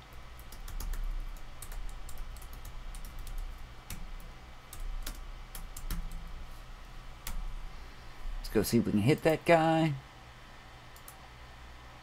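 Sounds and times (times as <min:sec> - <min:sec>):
faint low hum: 0:00.0 - 0:12.0
keyboard typing: 0:00.1 - 0:06.4.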